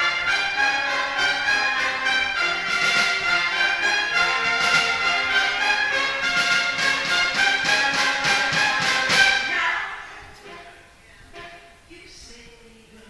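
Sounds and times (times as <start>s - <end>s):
jazz big band playing: 0.0s - 9.7s.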